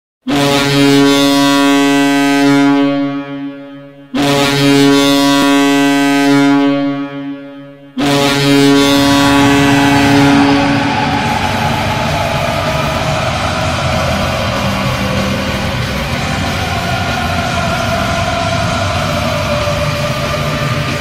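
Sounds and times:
deep air horn blasts: 0.3 - 21.0
steady rush of noise: 8.4 - 21.0.

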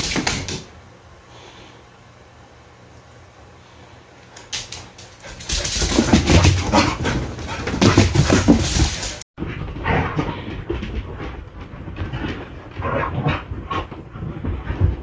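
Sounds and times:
air conditioner hum: 0.0 - 15.0
dogs vocalising and scuffling: 4.8 - 15.0.

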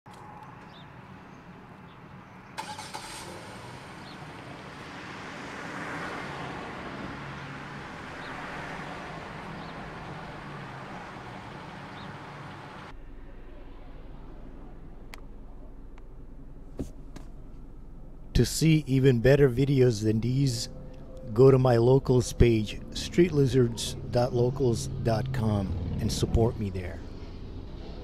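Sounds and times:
street traffic: 0.1 - 28.0
vehicle engine running: 2.6 - 28.0
steady low hum: 9.2 - 28.0.

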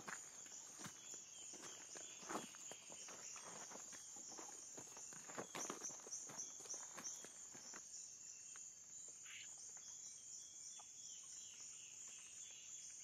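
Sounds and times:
footsteps on dirt path: 0.0 - 7.9
insects chirping: 0.0 - 13.0.

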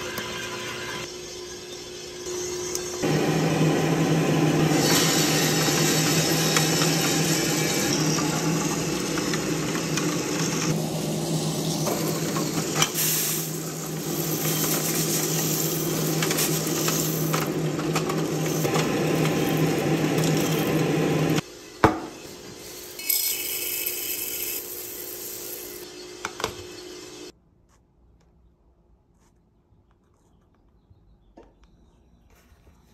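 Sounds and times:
fan hum: 1.2 - 27.3
coffee beans rattling in metal tray: 11.6 - 21.0, 22.9 - 25.8.

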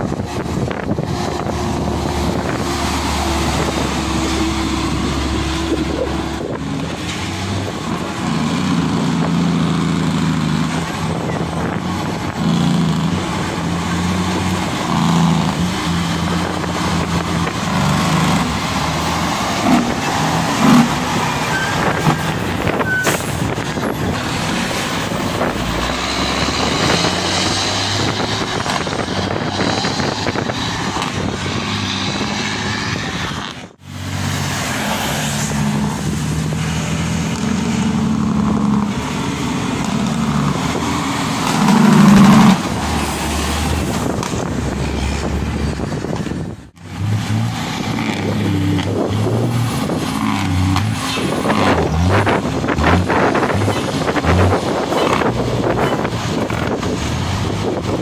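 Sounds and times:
diesel trucks passing: 0.0 - 58.0
brief high squeal: 21.4 - 22.2, 22.8 - 23.3.

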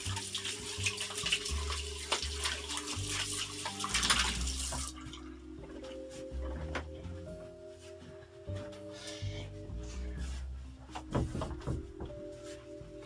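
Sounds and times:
faucet running: 0.0 - 5.4
background music with bass: 0.0 - 13.0.

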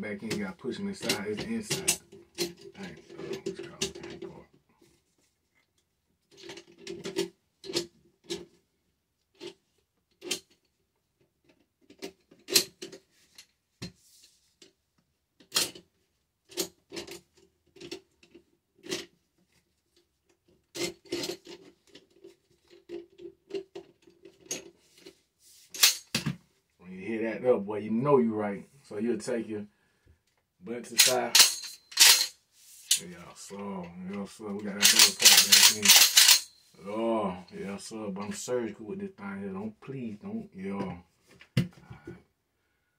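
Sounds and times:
shotgun parts clicking and scraping: 20.4 - 26.3, 30.8 - 33.2, 33.8 - 36.6.

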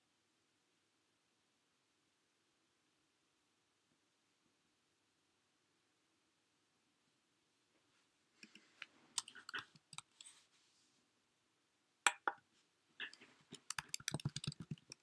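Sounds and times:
light clicks and taps: 13.0 - 15.0.

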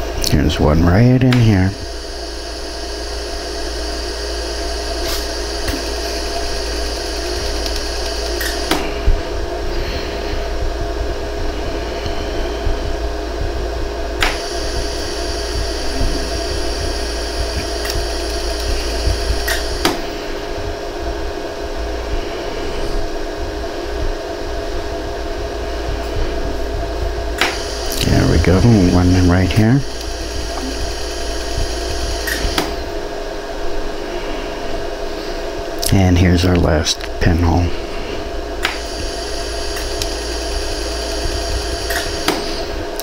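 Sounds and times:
laser welder humming: 0.0 - 36.6, 37.2 - 43.0
sharp laser pulse clicks: 5.0 - 8.9, 29.9 - 32.8, 38.6 - 42.4.

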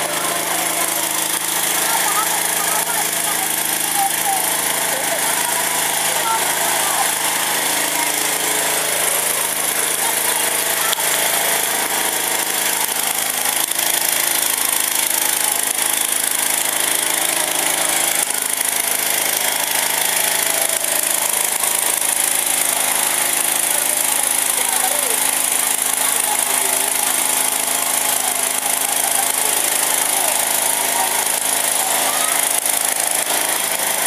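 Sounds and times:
faint voices: 0.0 - 12.4, 23.4 - 34.0
fire truck pump engine running: 0.0 - 34.0.

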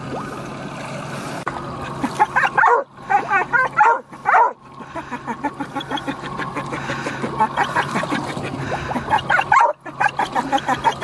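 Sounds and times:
steady low hum: 0.0 - 11.0
dog whining and yipping: 2.2 - 4.5, 9.1 - 11.0.

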